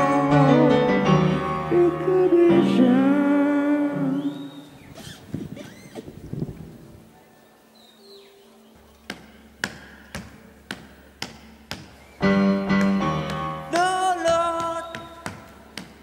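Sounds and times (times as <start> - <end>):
upright piano chords: 0.0 - 4.7, 11.6 - 16.0.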